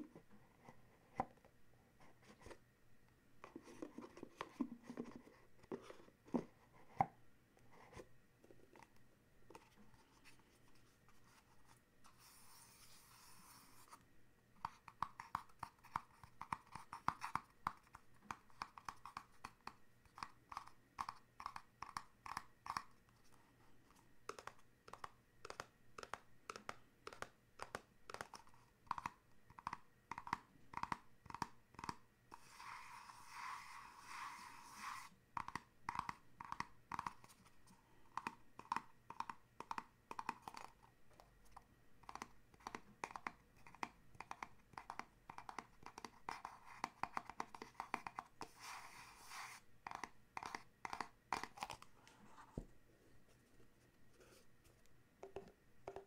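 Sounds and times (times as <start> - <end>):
scratchy rub over cardboard: 10.0 - 14.0, 32.3 - 35.2, 47.8 - 50.6.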